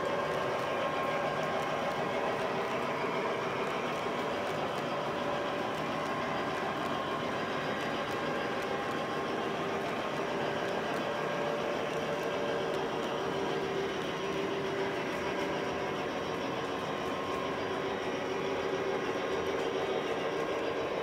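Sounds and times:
model train whirring: 0.0 - 21.0.

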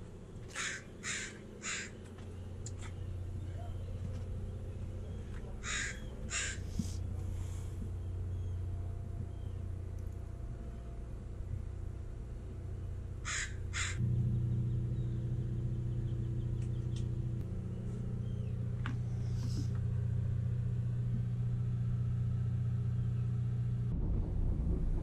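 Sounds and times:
low engine hum: 0.0 - 25.0
crow cawing: 0.5 - 2.2, 5.6 - 7.0, 13.2 - 14.0.

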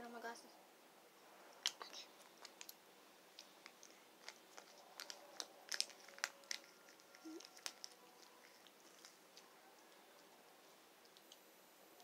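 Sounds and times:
plastic crinkling: 1.6 - 2.8, 3.4 - 10.3
lip smacks and mouth clicks: 1.6 - 10.4, 11.0 - 11.4.

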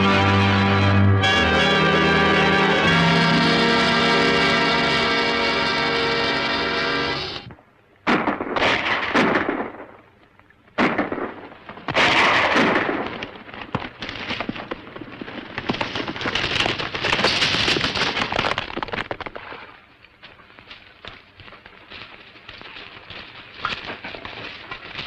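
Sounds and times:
loud noisy bursts: 0.0 - 7.5
horses galloping: 12.9 - 25.0.

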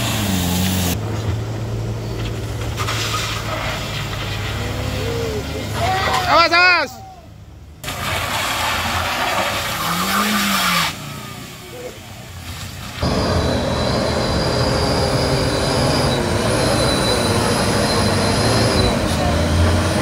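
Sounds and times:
truck diesel engine under load: 0.0 - 6.1, 7.6 - 20.0
car grinding over gravel: 2.1 - 6.2, 7.8 - 14.2
high-pitched whine: 13.0 - 20.0.

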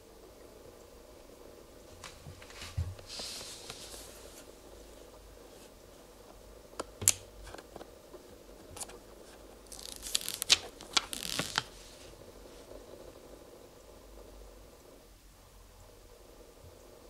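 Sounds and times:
paper label rustling and crinkling: 7.4 - 12.2.

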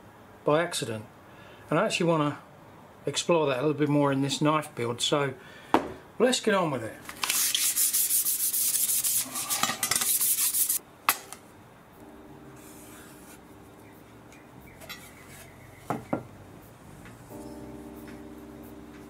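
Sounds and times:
rubbing on steel bar: 7.3 - 10.8.

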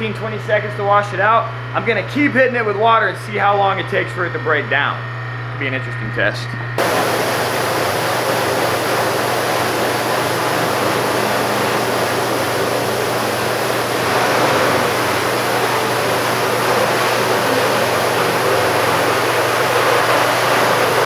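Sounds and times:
steady low hum: 0.0 - 21.0
pressure washer spray hissing: 6.8 - 21.0.

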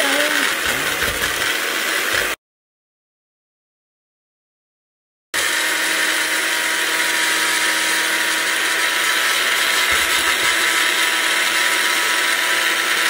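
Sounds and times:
blender motor whining: 0.0 - 2.4, 5.4 - 13.0.

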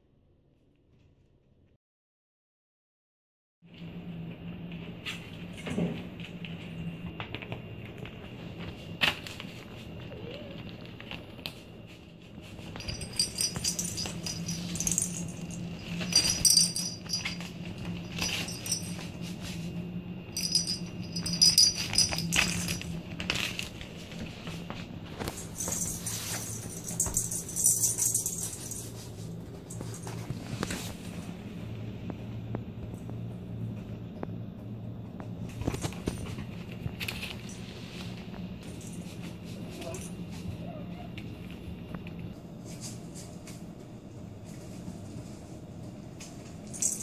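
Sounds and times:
steady low hum: 3.7 - 47.0
bell jingling in toy ball: 12.8 - 19.3, 20.4 - 23.6, 25.3 - 29.0, 46.7 - 47.0.

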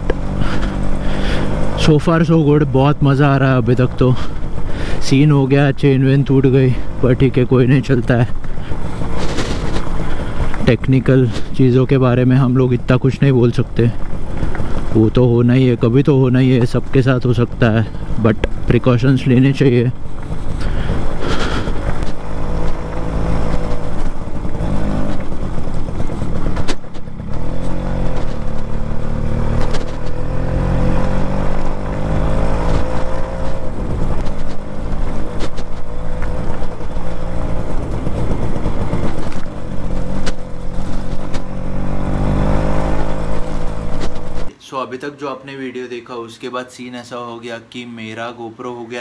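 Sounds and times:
two-stroke motorcycle engine running: 0.0 - 44.5
wind noise on microphone: 36.6 - 40.2.

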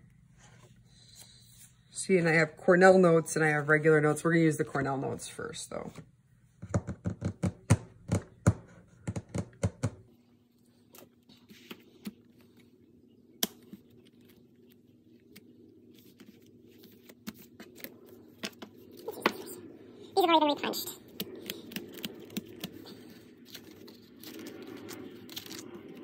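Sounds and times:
paper rustling: 13.6 - 19.6.

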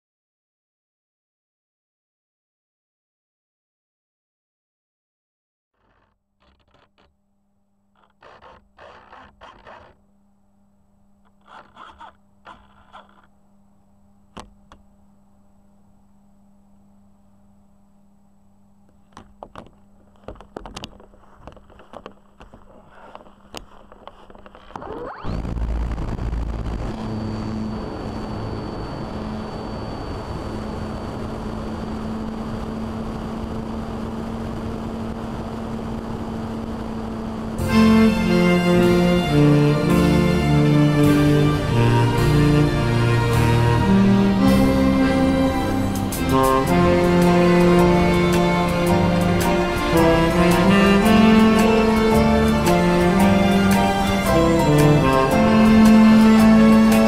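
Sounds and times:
model airplane motor whine: 5.8 - 7.2, 7.9 - 10.0, 11.2 - 13.4, 19.1 - 57.0
faint steady hum: 5.8 - 57.0
scraping and rustling handling noise: 18.9 - 25.0.

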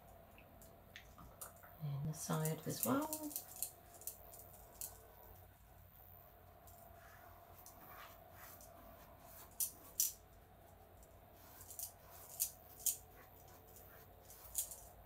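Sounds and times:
faint steady hum: 0.0 - 15.0
paintbrush scratching on fabric: 5.6 - 10.0, 10.8 - 15.0.

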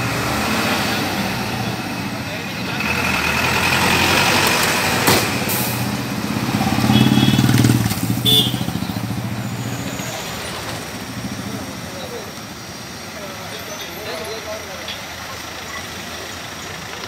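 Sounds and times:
motorcycle passing: 0.0 - 12.2.

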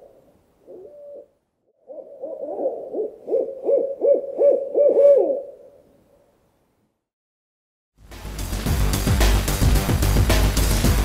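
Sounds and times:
owl hooting: 0.0 - 6.2.

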